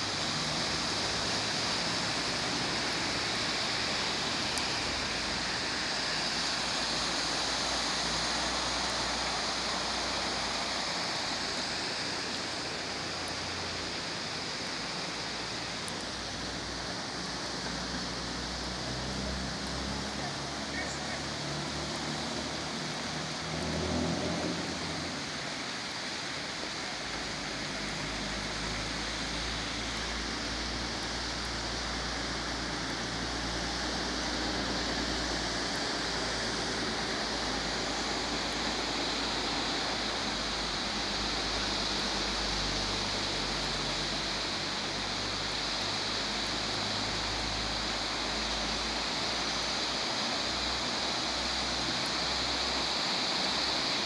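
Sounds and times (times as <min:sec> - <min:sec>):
floodwater rushing: 0:00.0 - 0:54.0
car pushing through water: 0:17.8 - 0:54.0.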